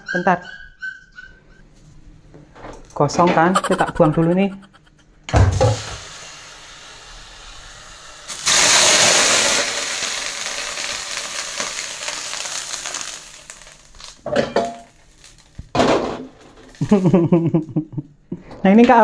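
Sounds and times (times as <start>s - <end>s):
hot wok hissing: 5.6s - 14.2s.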